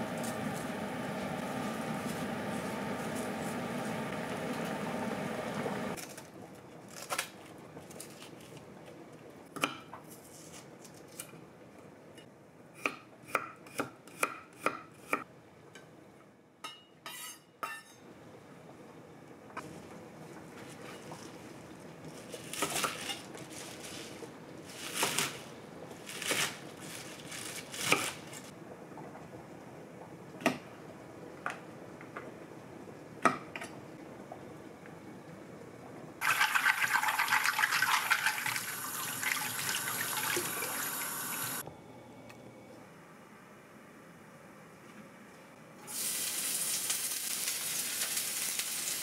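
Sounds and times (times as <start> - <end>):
rustling of vegetables: 6.0 - 9.0, 20.4 - 28.5
kitchen tap running: 36.2 - 41.6.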